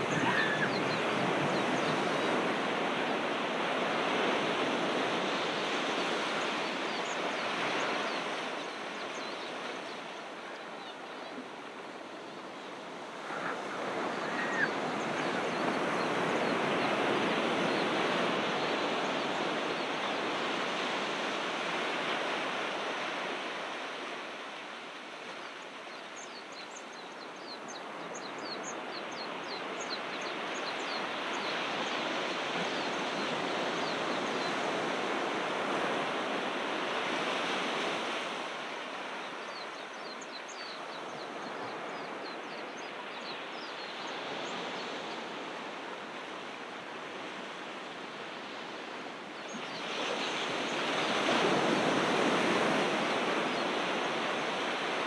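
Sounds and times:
ocean surf breaking: 0.0s - 12.0s.

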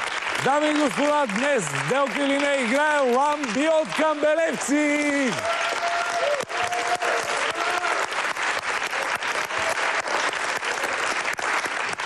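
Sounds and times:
audience applauding: 0.0s - 12.0s.

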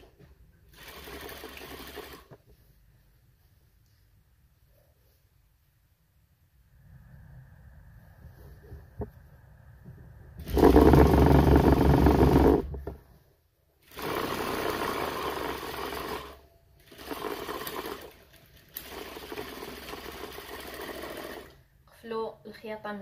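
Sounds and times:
sewing machine stitching: 0.7s - 2.4s, 10.4s - 12.9s, 13.8s - 21.6s.

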